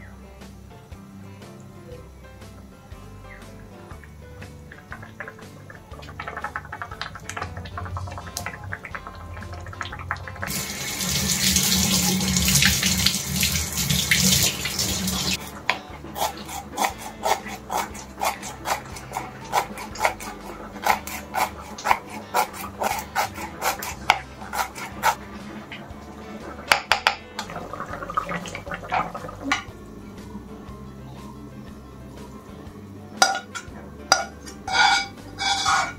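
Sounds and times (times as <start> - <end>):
water running from a tap: 4.0 - 15.5, 16.2 - 29.9
knife chopping on wooden board: 16.2 - 25.2.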